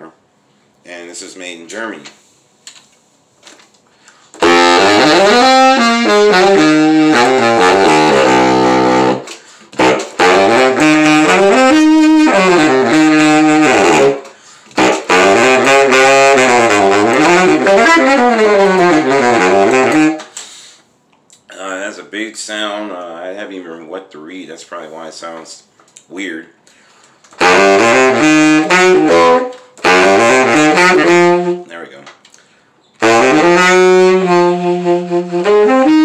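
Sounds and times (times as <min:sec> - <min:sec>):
baritone saxophone playing: 0:04.4 - 0:20.3, 0:27.4 - 0:31.8, 0:33.0 - 0:36.0.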